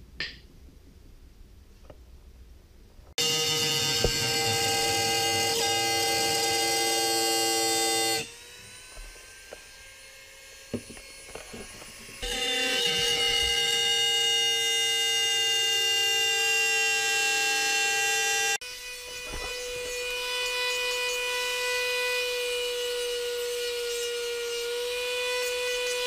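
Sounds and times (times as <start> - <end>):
rotary tool whining: 3.2 - 26.0.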